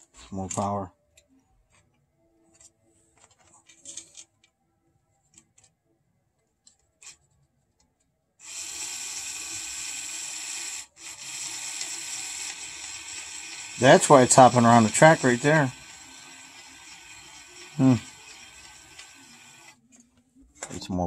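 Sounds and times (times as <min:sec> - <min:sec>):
small electric motor whirring: 0:08.4 - 0:19.8.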